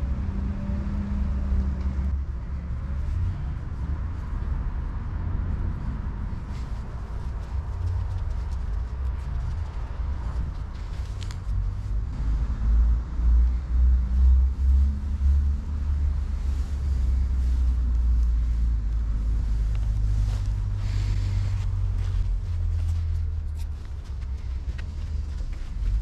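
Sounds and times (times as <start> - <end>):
wind rumble on microphone: 0.0 - 26.0
faint scuffs and rustles: 6.3 - 12.2, 14.0 - 26.0.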